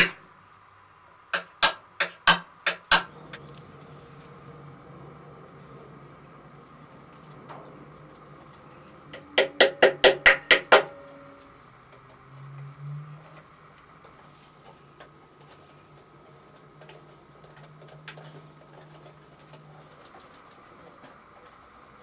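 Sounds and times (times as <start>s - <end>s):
faint low hum: 3.0s - 22.0s
sharp ringing knocks: 7.0s - 11.5s.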